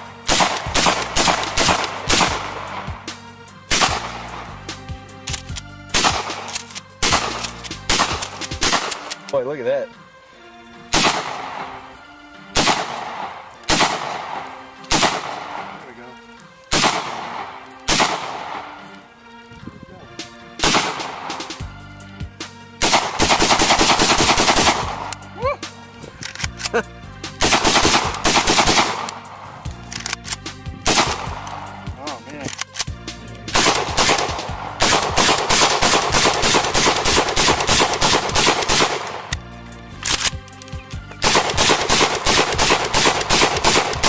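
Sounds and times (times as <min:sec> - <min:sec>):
gunshots with echo: 0:00.3 - 0:02.6, 0:12.6 - 0:15.8, 0:16.7 - 0:18.7, 0:20.6 - 0:21.4, 0:22.8 - 0:25.0, 0:33.5 - 0:39.3, 0:41.2 - 0:44.0
rapid gunshots: 0:00.3 - 0:02.6, 0:03.7 - 0:04.2, 0:05.9 - 0:09.1, 0:10.9 - 0:11.5, 0:12.6 - 0:15.7, 0:16.7 - 0:18.6, 0:20.6 - 0:21.6, 0:22.8 - 0:25.1, 0:27.4 - 0:29.1, 0:30.9 - 0:31.4, 0:33.5 - 0:39.3, 0:41.2 - 0:44.0.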